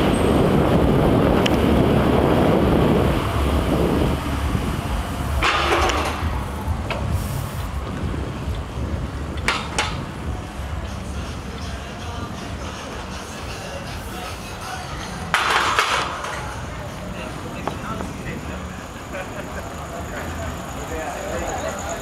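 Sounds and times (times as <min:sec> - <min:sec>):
rushing air: 0:00.0 - 0:11.5
bike tyres rumbling: 0:00.0 - 0:22.0.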